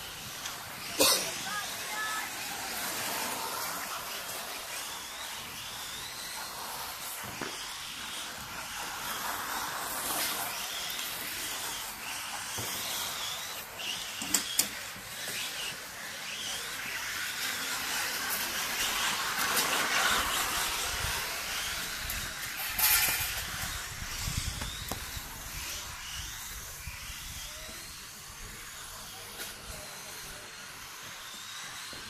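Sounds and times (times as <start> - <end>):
tyre hiss on court surface: 0.0 - 25.6
electric motors whining: 0.0 - 32.0.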